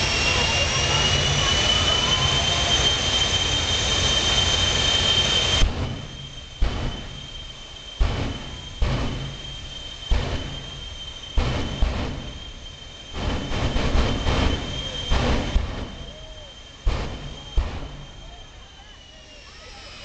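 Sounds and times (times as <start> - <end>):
jet engine high whine: 0.0 - 20.0
afterburner blasts: 4.3 - 20.0.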